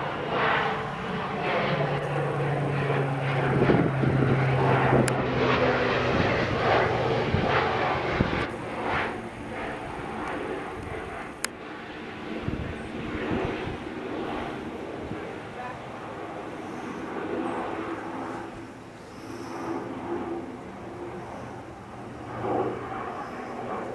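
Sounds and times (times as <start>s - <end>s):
propeller airplane droning overhead: 0.0s - 23.9s.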